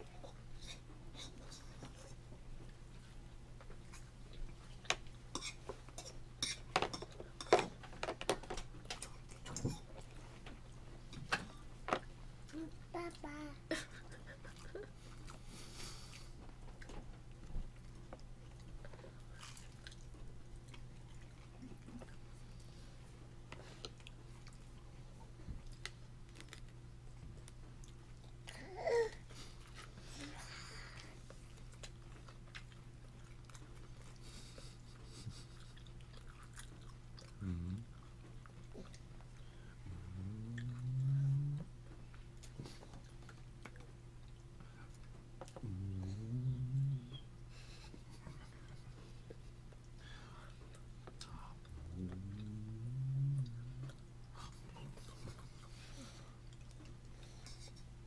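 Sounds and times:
steady low hum: 0.0 - 58.0
toddler babbling: 12.5 - 13.6, 28.6 - 29.2.

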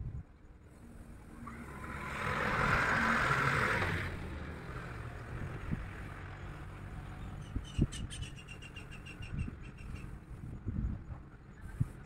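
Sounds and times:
vehicle passing by: 0.8 - 9.0.

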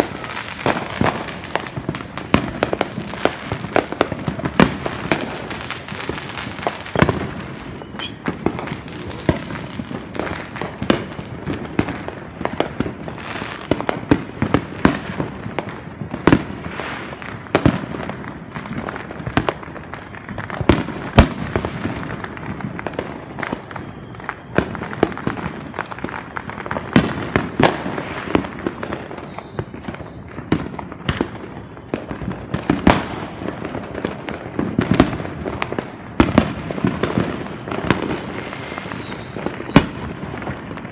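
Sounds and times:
fireworks crackling and banging: 0.0 - 40.9.

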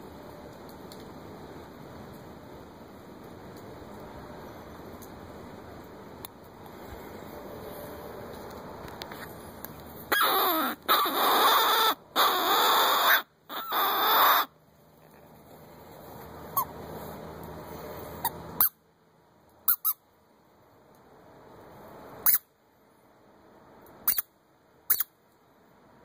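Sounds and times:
predator call squalling: 10.1 - 14.5
short sharp squeaks: 24.9 - 25.1.

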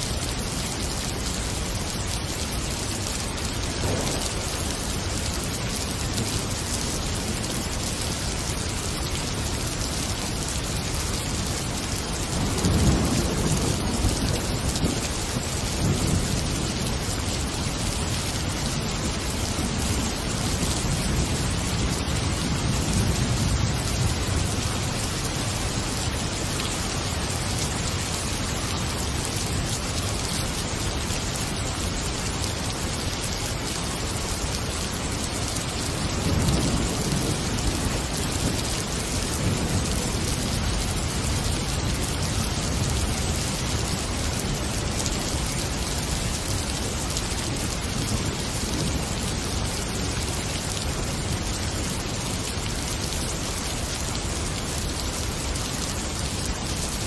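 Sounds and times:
rain falling: 0.0 - 57.0
low rumble of thunder: 3.2 - 8.3, 12.0 - 28.0, 35.5 - 44.8.

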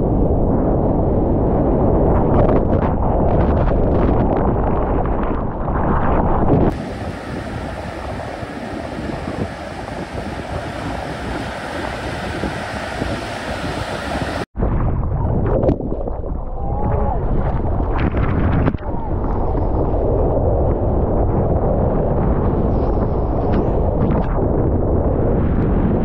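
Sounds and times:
wind buffeting microphone: 0.0 - 26.0
ocean surf breaking: 6.7 - 14.5.

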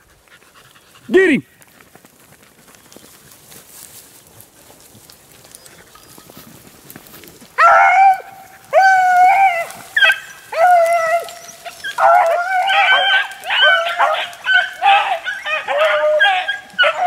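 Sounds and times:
beagles baying: 5.3 - 17.0.

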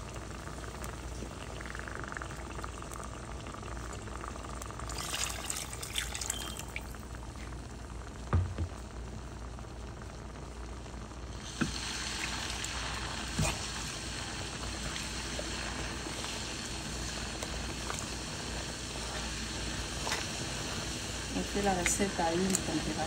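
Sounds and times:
rice stirred in broth sloshing: 12.2 - 22.6.

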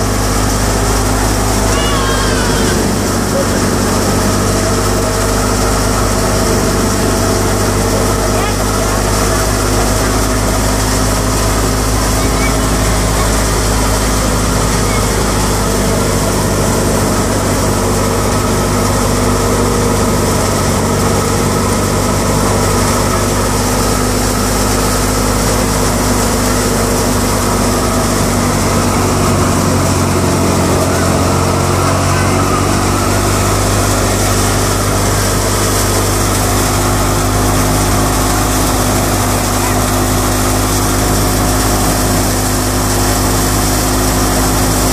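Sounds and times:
threshing machine running: 0.0 - 44.9
tractor engine: 0.0 - 44.9.

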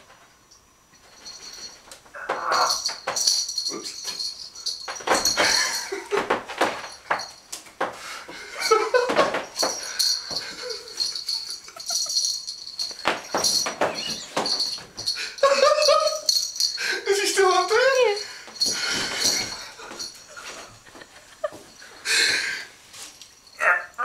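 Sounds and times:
cat toy jingling: 1.0 - 7.5, 8.6 - 20.8
man giggling breathily: 5.4 - 6.3, 8.4 - 12.3.

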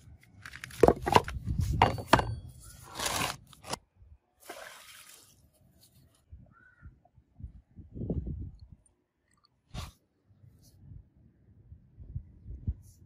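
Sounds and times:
knocks and scrapes on concrete: 0.5 - 3.8.

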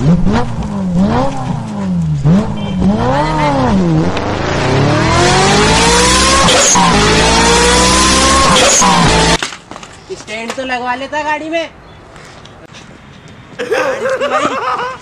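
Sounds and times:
vehicle engine revving: 0.0 - 9.4.

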